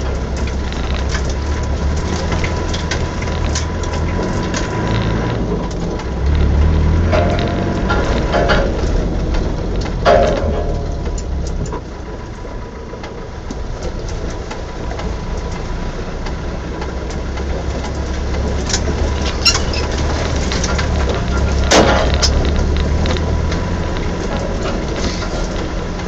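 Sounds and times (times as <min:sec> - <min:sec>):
car engine running: 0:00.0 - 0:26.0
vehicle knocking over ruts: 0:00.0 - 0:26.0
water splashing under wheels: 0:00.0 - 0:26.0
loud short clatter: 0:00.4 - 0:11.8, 0:18.6 - 0:26.0.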